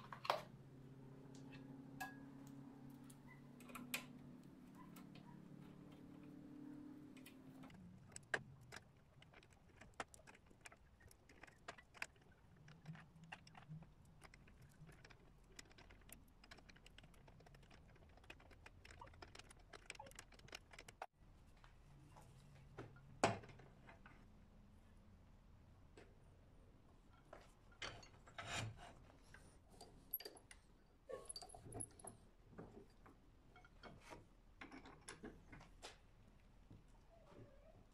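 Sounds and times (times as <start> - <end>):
small metallic clicks and clinks: 29.3 - 35.6.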